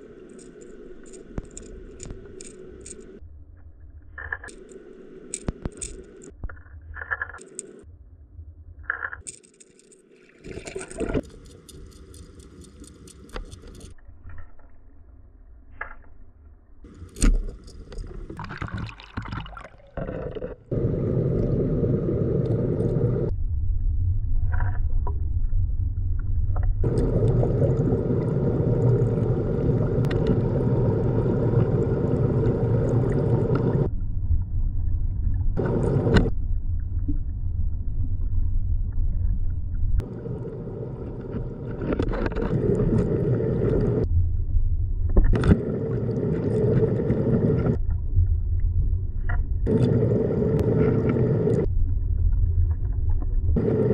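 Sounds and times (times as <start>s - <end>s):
underwater clicks and scrapes: 0.0s - 3.2s, 4.0s - 7.9s, 8.8s - 15.1s, 15.7s - 21.6s, 24.4s - 25.5s, 26.1s - 34.5s, 35.6s - 37.3s, 38.2s - 44.1s, 45.0s - 53.9s
turbulent water rushing underwater: 26.8s - 33.9s, 35.6s - 36.3s, 40.0s - 44.0s.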